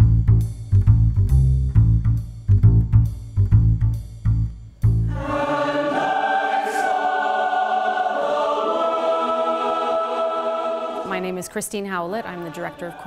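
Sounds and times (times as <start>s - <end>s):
plucked bass notes: 0.0s - 5.2s
mixed choir singing: 5.1s - 11.5s.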